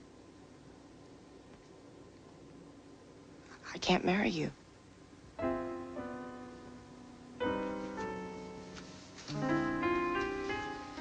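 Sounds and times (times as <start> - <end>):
piano chords: 5.2 - 11.0.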